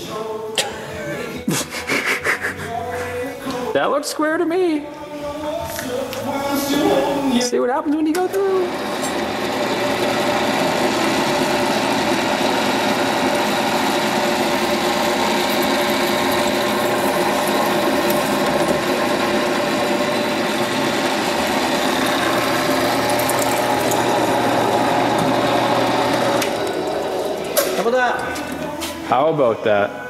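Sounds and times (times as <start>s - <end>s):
drill press whirring: 8.1s - 28.9s.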